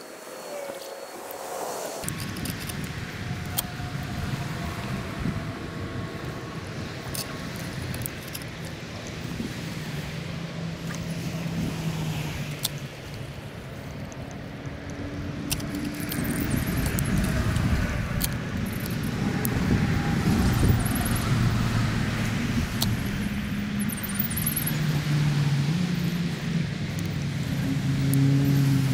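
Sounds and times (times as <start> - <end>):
shallow stream hissing: 0.0 - 2.1
vehicle engine rumble: 1.4 - 28.9.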